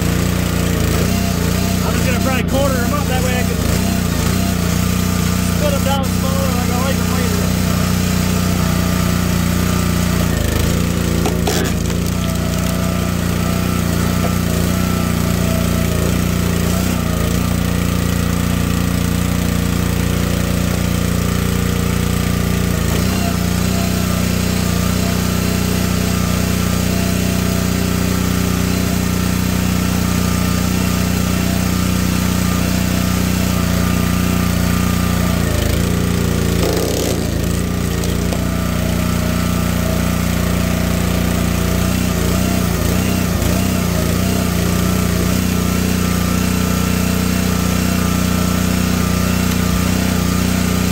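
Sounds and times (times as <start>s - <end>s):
small gas engine running: 0.0s - 50.9s
logs cracking as they split: 11.2s - 12.9s.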